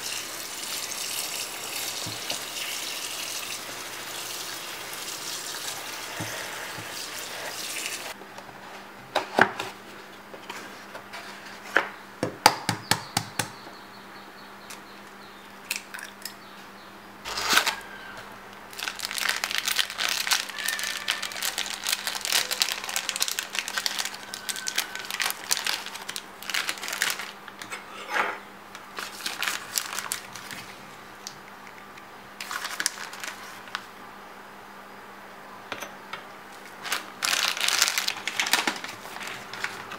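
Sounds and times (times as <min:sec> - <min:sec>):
plastic bag crinkling: 0:18.7 - 0:27.5, 0:29.0 - 0:30.8, 0:32.4 - 0:33.9, 0:36.7 - 0:39.9.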